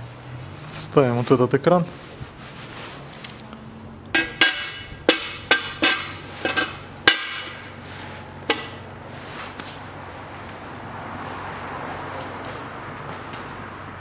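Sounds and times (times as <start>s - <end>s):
metal plate clinking on metal: 4.2s - 7.8s, 8.5s - 8.9s.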